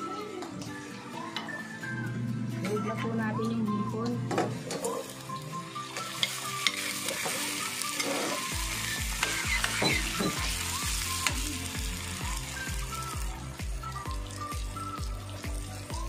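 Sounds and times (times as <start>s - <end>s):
shrimp sizzling in a pan: 4.6s - 16.0s
metal spoon scraping a pan: 6.1s - 8.5s.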